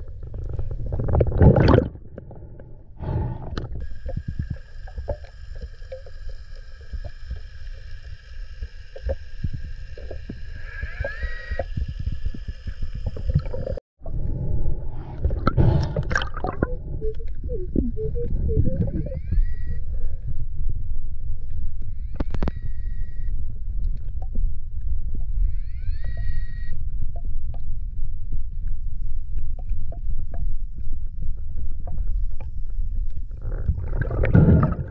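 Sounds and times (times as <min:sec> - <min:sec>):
water churning and swishing: 0:00.0 - 0:19.3, 0:29.8 - 0:34.9
underwater rumble of water: 0:00.0 - 0:34.9
steady high tones: 0:16.1 - 0:19.8.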